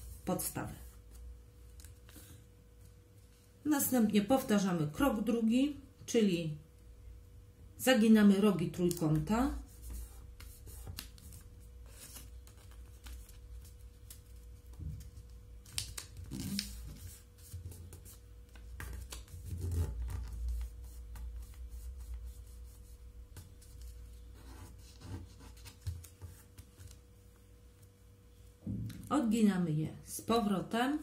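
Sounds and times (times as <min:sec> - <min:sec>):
paper folding and creasing: 0:08.8 - 0:22.2.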